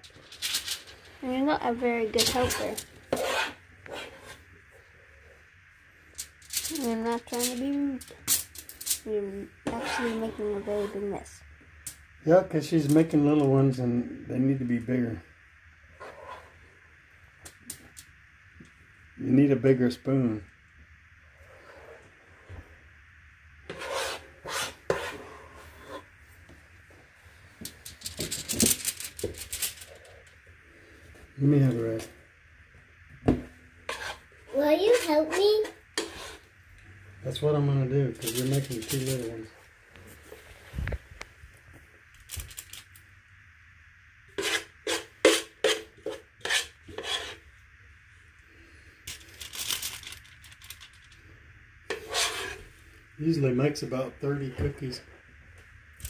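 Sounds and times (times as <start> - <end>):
spoon scraping thick mixture: 2.4 - 4.5, 9.6 - 11.0, 23.7 - 26.2, 33.8 - 36.5, 44.3 - 47.5, 51.9 - 52.7.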